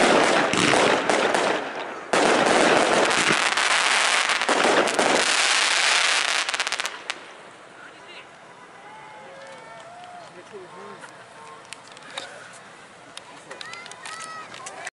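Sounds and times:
fireworks bursting and crackling: 0:00.0 - 0:08.4.

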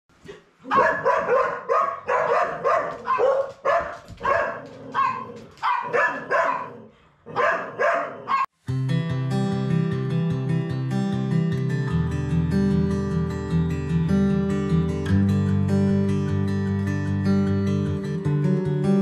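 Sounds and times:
dog barking excitedly: 0:00.6 - 0:08.5
acoustic guitar music: 0:08.6 - 0:19.0.

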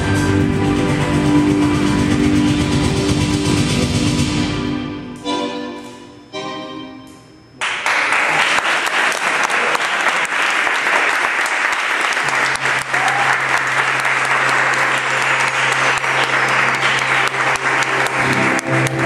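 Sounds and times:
tango music chords: 0:00.0 - 0:07.6, 0:12.2 - 0:19.0
audience applause: 0:07.6 - 0:19.0.

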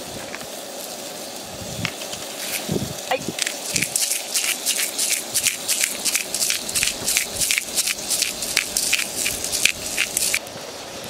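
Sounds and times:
shrimp sizzling in oil: 0:00.0 - 0:11.0
crackling pops: 0:03.3 - 0:10.5.

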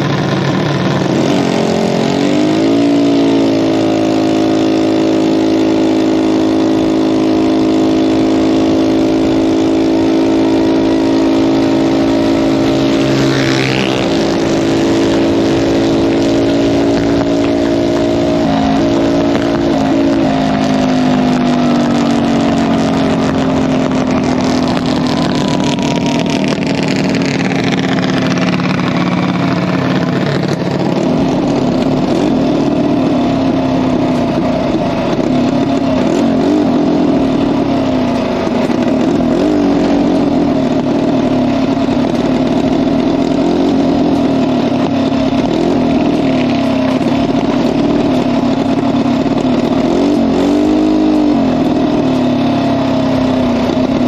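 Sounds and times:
small dragster engine running: 0:00.0 - 0:54.0.

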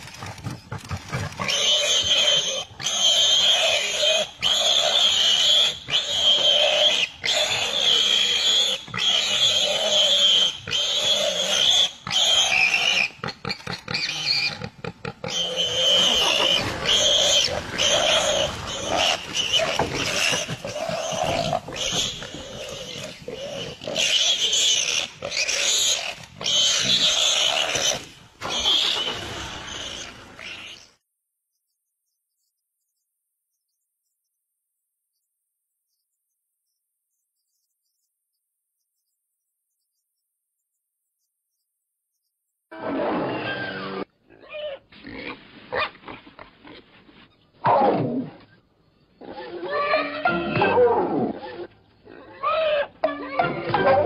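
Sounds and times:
pig squealing in distress: 0:01.1 - 0:30.9, 0:42.7 - 0:46.8, 0:49.2 - 0:54.0.

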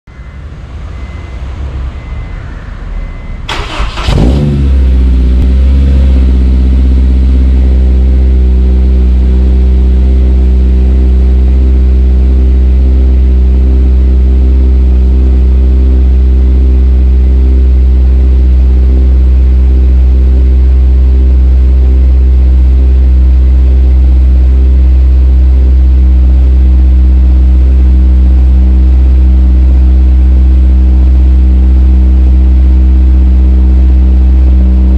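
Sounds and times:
starter motor cranking: 0:03.5 - 0:04.4
car engine idling loudly: 0:03.5 - 0:34.9.

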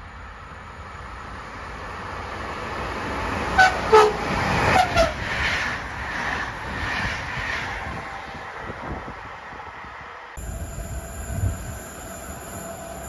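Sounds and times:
electric train rushing past: 0:00.0 - 0:13.0
train horn toots: 0:03.6 - 0:05.2.

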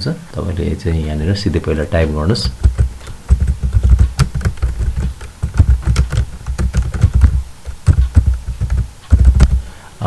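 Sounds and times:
typing on computer keyboard: 0:02.5 - 0:09.6.

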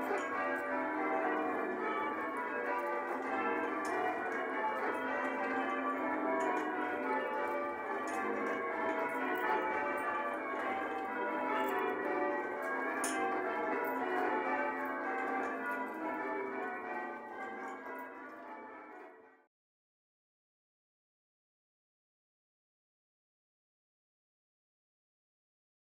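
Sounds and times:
church bells change ringing: 0:00.0 - 0:19.2.

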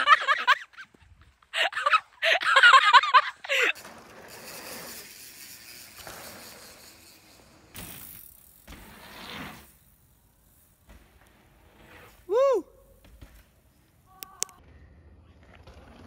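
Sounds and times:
mountain bikes rolling on dirt: 0:00.0 - 0:14.1
person yelling: 0:12.3 - 0:12.8.

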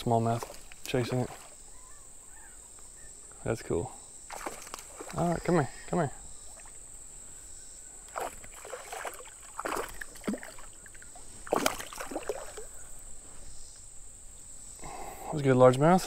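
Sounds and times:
fish splashing in water: 0:04.3 - 0:05.4, 0:08.1 - 0:12.8.

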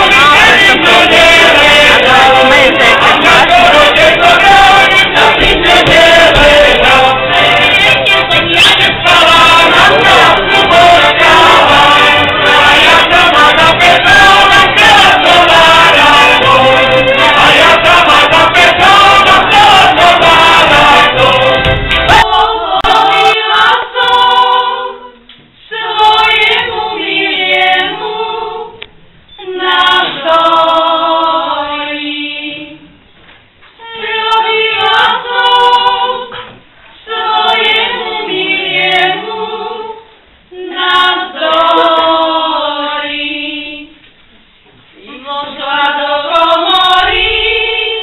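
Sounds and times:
women singing unaccompanied: 0:00.0 - 0:33.0, 0:33.8 - 0:44.0, 0:44.9 - 0:48.0.

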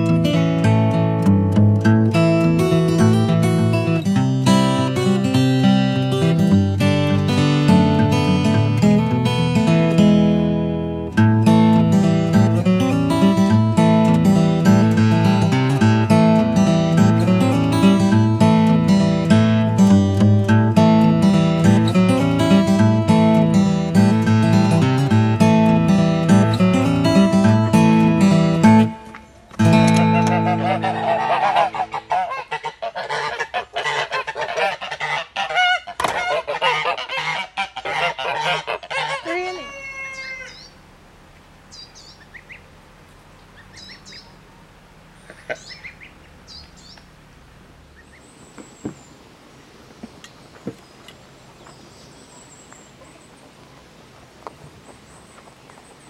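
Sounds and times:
geese honking and cackling: 0:29.6 - 0:47.2
faint high bird chirps: 0:39.5 - 0:40.8, 0:41.7 - 0:42.7, 0:43.4 - 0:47.1.

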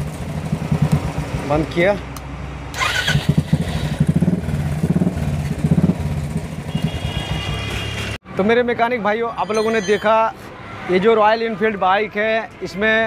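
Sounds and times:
motorcycle engine revving: 0:00.0 - 0:01.6, 0:02.7 - 0:08.1.

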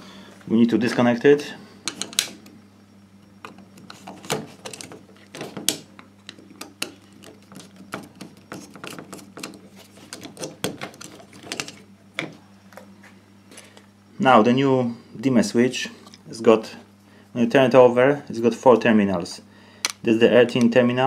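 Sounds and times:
screwdriver scraping metal on plastic: 0:06.8 - 0:11.8.

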